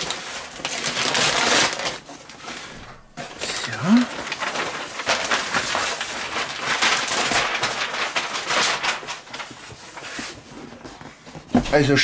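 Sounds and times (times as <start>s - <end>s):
wrapping paper crumpling: 0.0s - 10.9s.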